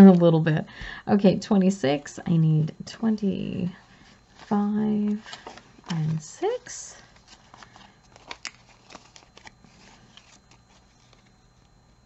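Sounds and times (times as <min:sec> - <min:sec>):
paper rustling: 0:04.0 - 0:11.3.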